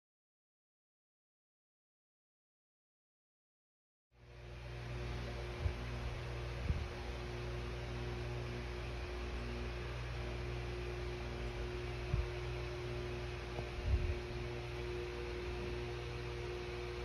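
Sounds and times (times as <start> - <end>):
low tonal hum: 4.2 - 17.0.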